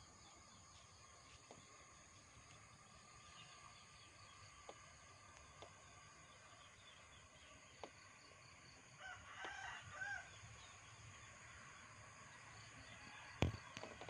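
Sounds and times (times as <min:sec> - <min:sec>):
open-air hiss: 0:00.0 - 0:14.0
faint rooster crowing: 0:09.0 - 0:10.6.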